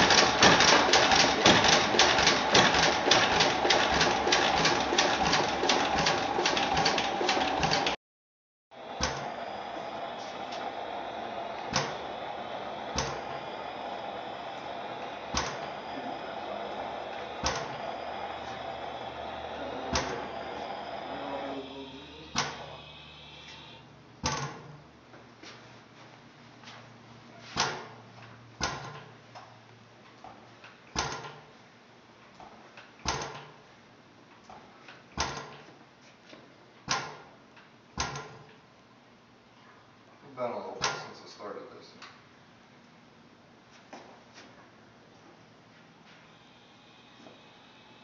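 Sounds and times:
engine compressor knocks: 0.0 - 8.0, 15.0 - 24.8
steady mechanical noise: 0.0 - 8.0, 8.7 - 24.8, 46.0 - 48.0
faint steady hum: 8.8 - 24.2, 44.5 - 48.0
gas engine exhaust bangs: 8.8 - 24.4.

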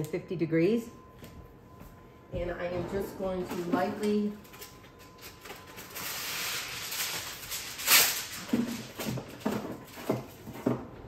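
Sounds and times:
foil crinkling: 4.3 - 10.6
aluminum foil ripping: 4.5 - 10.4.

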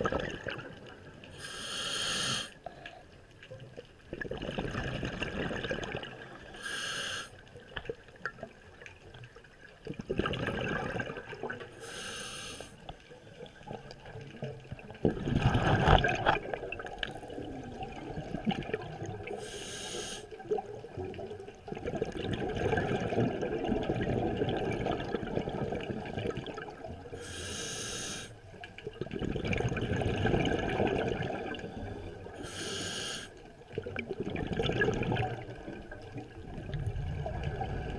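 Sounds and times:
gurgling exhaled bubbles: 0.0 - 1.4, 4.0 - 6.6, 9.8 - 11.8, 13.5 - 19.4, 20.3 - 27.2, 28.8 - 32.4, 33.4 - 37.9
regulator inhalation hiss: 1.4 - 2.6, 6.6 - 7.4, 11.8 - 12.8, 19.4 - 20.3, 27.2 - 28.3, 32.4 - 33.4.

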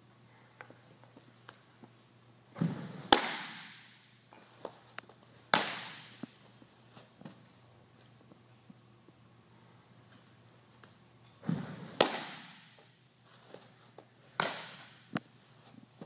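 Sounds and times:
baseball popping into mitt with echo: 2.6 - 3.9, 5.5 - 6.3, 11.5 - 12.8, 14.4 - 15.0.

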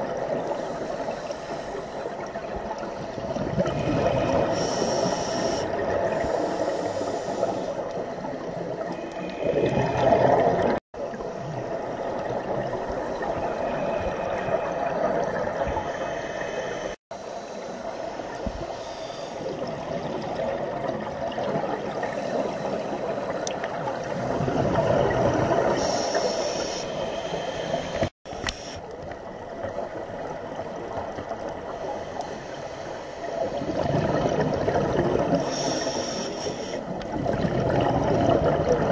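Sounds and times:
regulator bubbles gurgling: 0.0 - 16.2, 19.4 - 28.1, 33.3 - 38.9
underwater wash: 0.0 - 38.9.

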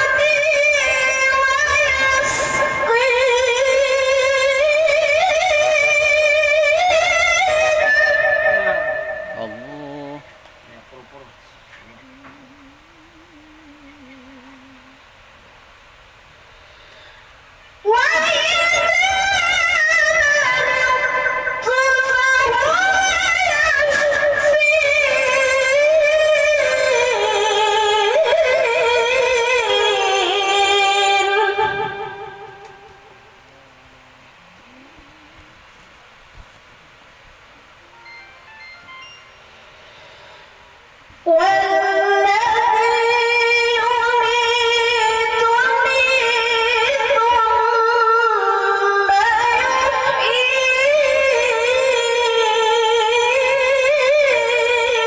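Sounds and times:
woman chanting into a microphone: 0.0 - 9.1, 17.8 - 32.6, 41.3 - 55.0.

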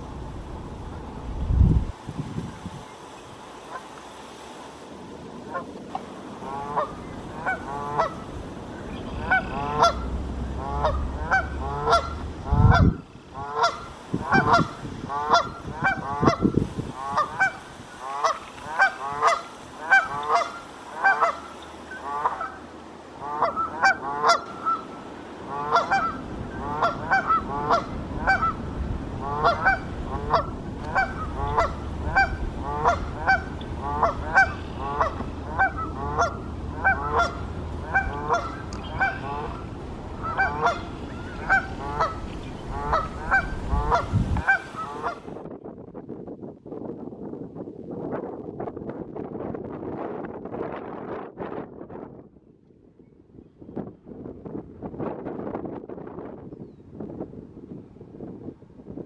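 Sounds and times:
geese honking: 5.5 - 5.7, 6.4 - 45.3.

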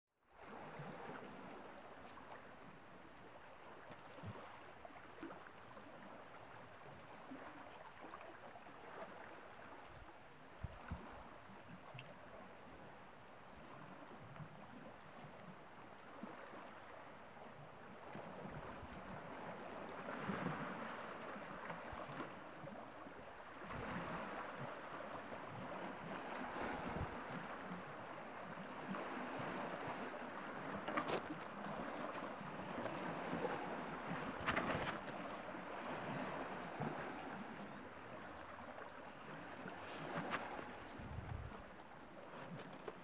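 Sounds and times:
waves lapping against rocks: 13.6 - 43.0.

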